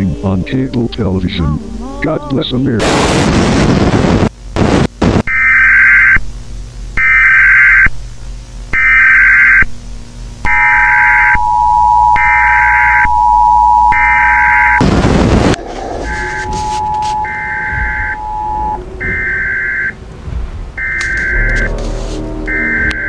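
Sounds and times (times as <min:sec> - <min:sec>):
tv static: 0:00.0 - 0:20.0, 0:20.7 - 0:23.0
screeching data bursts: 0:05.3 - 0:06.2, 0:07.0 - 0:08.0, 0:08.7 - 0:09.7, 0:10.4 - 0:20.0, 0:20.8 - 0:23.0
two-tone attention signal: 0:10.5 - 0:14.8, 0:16.0 - 0:20.0, 0:20.8 - 0:23.0.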